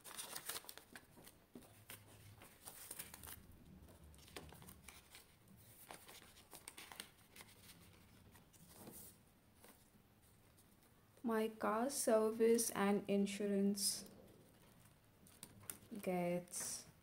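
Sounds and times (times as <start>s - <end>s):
paper and plastic crinkling: 0.0s - 10.8s, 14.4s - 16.8s.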